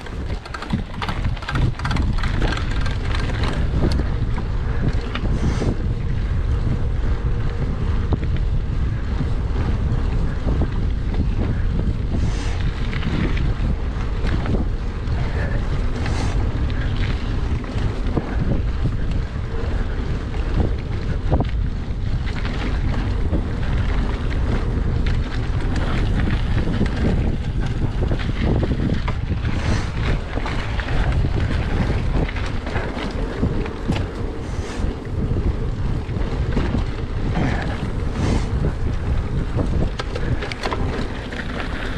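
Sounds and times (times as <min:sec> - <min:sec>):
bike knocks and rattles: 0:00.0 - 0:41.9
wind buffeting microphone: 0:00.0 - 0:41.9
tyres rolling over dirt and leaves: 0:12.3 - 0:41.9.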